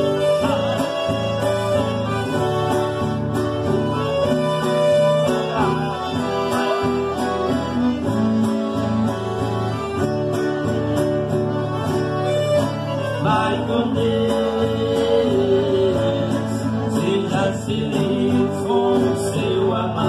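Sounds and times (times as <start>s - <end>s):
man singing into a microphone: 0.0s - 1.8s, 4.8s - 7.4s, 13.0s - 20.0s
accordion: 0.0s - 20.0s
acoustic guitar: 0.0s - 20.0s.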